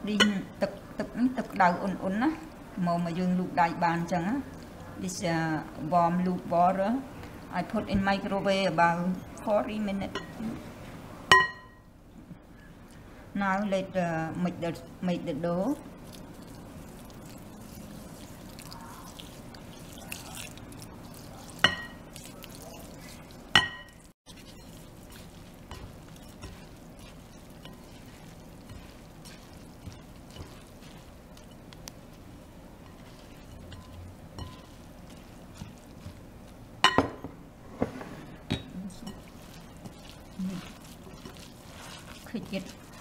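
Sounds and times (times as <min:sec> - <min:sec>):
utensil stirring with scraping: 0:15.6 - 0:36.8, 0:37.6 - 0:43.0.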